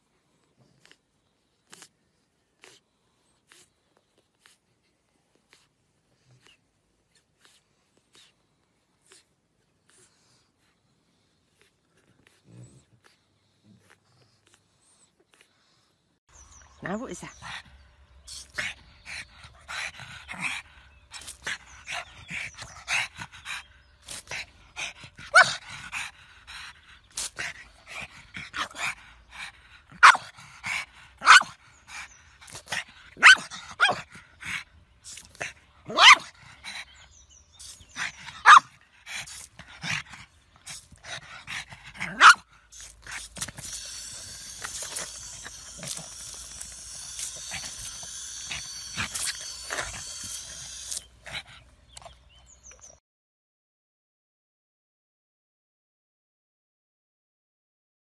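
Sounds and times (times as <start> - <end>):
dog panting: 17.2 - 53.0
dog barking: 30.0 - 30.2, 31.2 - 31.5, 33.2 - 34.0, 35.9 - 36.3, 38.4 - 38.7, 42.0 - 42.4
hiss of spraying water: 42.7 - 51.3.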